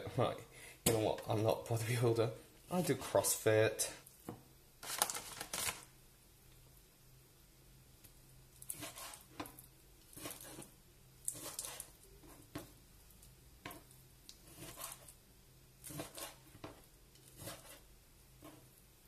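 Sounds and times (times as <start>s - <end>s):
knife cutting on plastic board: 8.7s - 9.3s, 10.1s - 10.7s, 11.3s - 12.7s, 14.4s - 15.1s, 15.8s - 17.8s.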